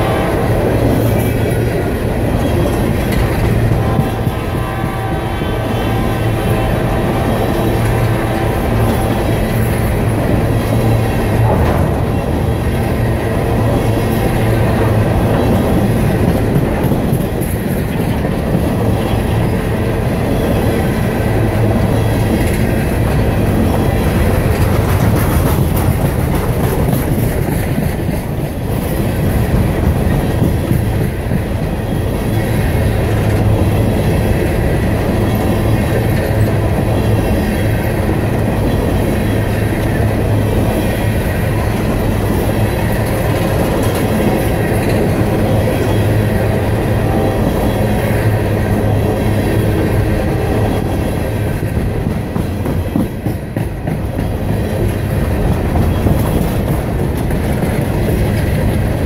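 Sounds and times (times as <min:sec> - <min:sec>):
clickety-clack over rail joints: 0:00.0 - 0:59.0
steel wheels rumbling on rail: 0:00.0 - 0:59.0.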